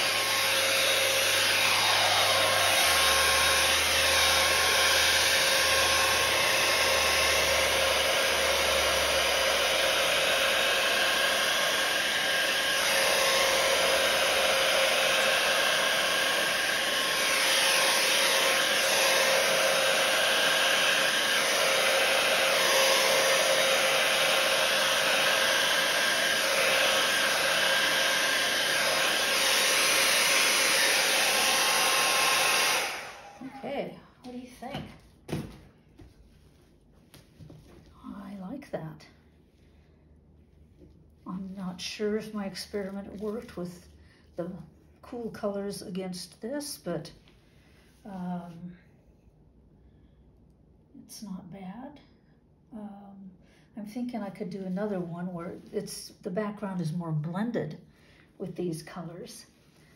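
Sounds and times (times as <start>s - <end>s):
hair dryer running: 0.0s - 36.1s.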